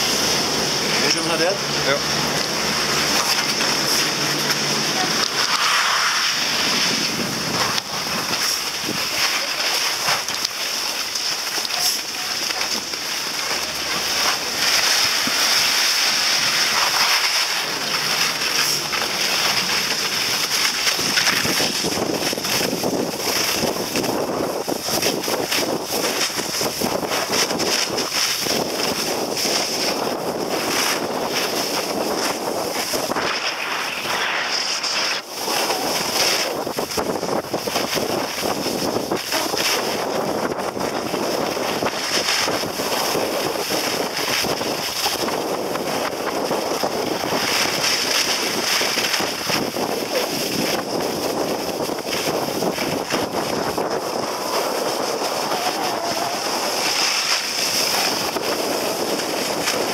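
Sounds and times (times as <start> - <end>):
skis sliding over packed snow: 0.0 - 59.9
wind rushing over microphone: 0.0 - 59.9.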